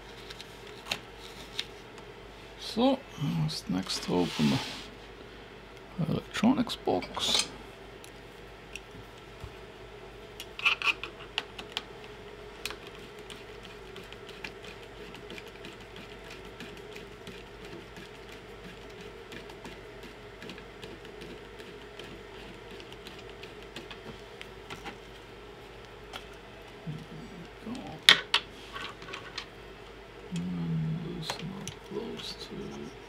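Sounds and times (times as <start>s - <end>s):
faint steady hum: 0.0s - 33.0s
clicks and taps of tools and plastic: 11.3s - 11.9s.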